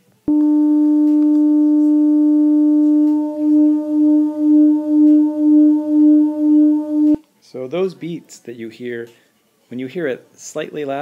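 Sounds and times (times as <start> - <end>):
loud steady tone with beats: 0.3 - 7.2.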